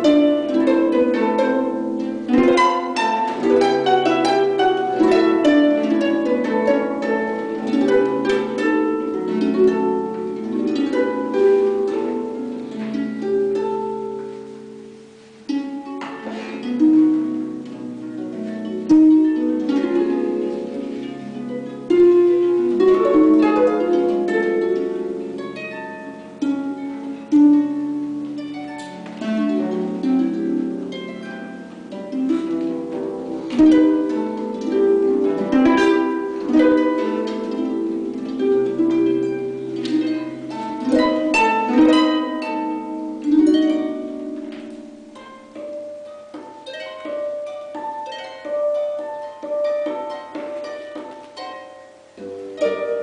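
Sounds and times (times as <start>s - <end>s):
harp playing: 0.0s - 53.0s.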